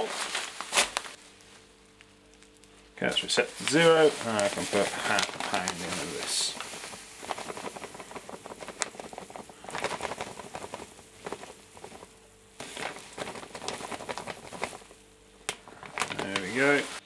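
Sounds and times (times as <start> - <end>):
grain pouring onto pile: 3.6 - 14.9, 15.9 - 17.0.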